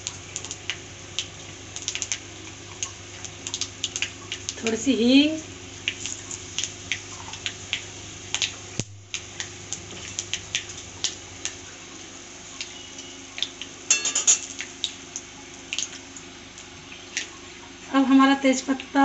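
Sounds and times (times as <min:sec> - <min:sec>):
spices frying in hot oil: 0:00.0 - 0:19.0
metal spatula clattering on pan: 0:13.9 - 0:14.6.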